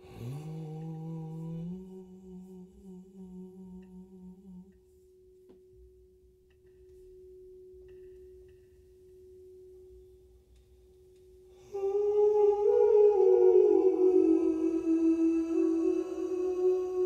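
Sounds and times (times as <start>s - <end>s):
man humming low note: 0.0s - 5.0s, 11.6s - 17.0s
singing bowl pure tone: 0.0s - 17.0s.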